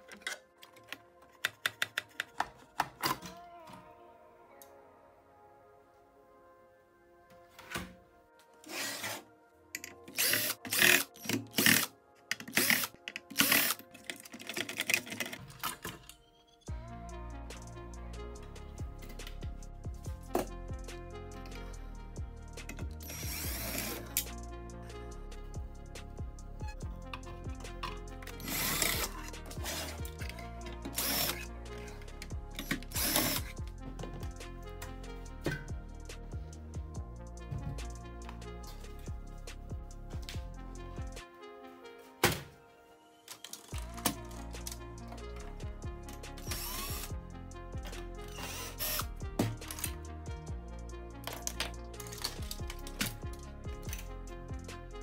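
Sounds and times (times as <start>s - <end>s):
background music with steady beat: 0.0s - 55.0s
electric screwdriver running: 23.0s - 24.0s, 28.4s - 30.0s, 30.9s - 31.4s, 33.0s - 33.5s, 46.4s - 47.1s, 48.3s - 49.1s.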